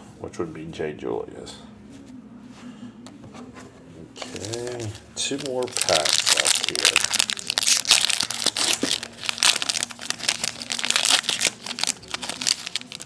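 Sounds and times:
plastic wrapper crinkling and tearing: 0:04.2 - 0:13.0.

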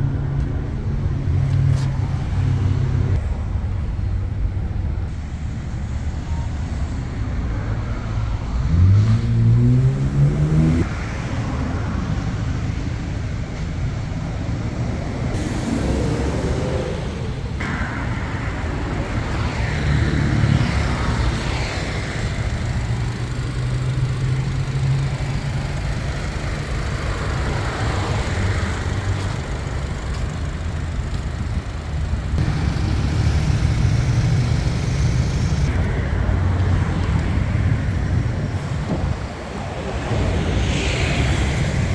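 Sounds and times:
low engine hum: 0:00.0 - 0:41.9
road traffic: 0:00.0 - 0:41.9
engine speeding up: 0:07.8 - 0:11.3, 0:15.3 - 0:41.9.

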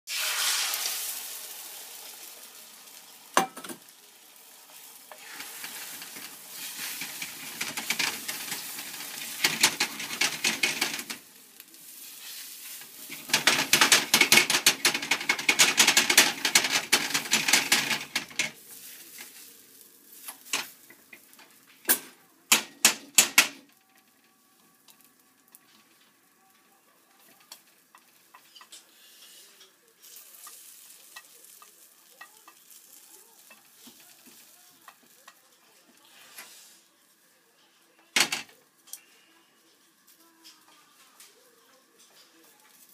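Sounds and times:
egg sizzling in a frying pan: 0:00.1 - 0:39.0, 0:39.7 - 0:42.9
chopsticks scraping a pan: 0:04.7 - 0:11.2, 0:11.8 - 0:19.5, 0:27.2 - 0:36.9
sharp knocks on a pan: 0:22.5 - 0:23.6.

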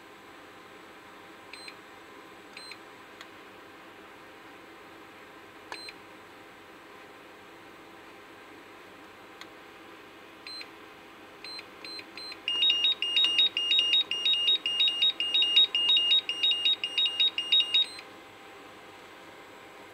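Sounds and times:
short beeps: 0:12.2 - 0:18.0
rapid high-pitched two-tone beeping: 0:12.5 - 0:18.0.

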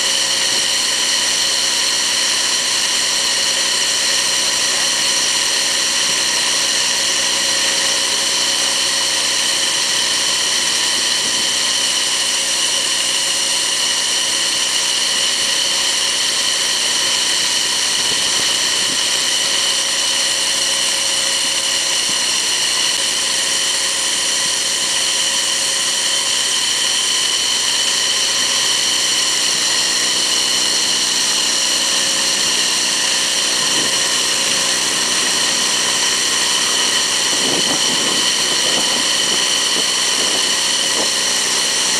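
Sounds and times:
mulch blower whining: 0:00.0 - 0:41.9
rush of air through hose: 0:00.0 - 0:41.9.

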